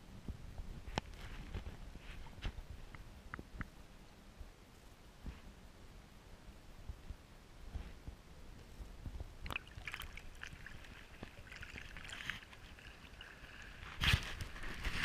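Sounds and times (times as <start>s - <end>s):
small crackles: 9.4s - 15.0s
water sloshing and splashing: 9.4s - 15.0s.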